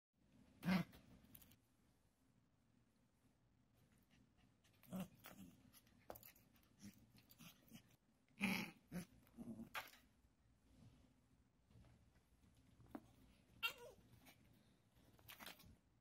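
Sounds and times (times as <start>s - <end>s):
puppy play growls: 4.7s - 10.0s.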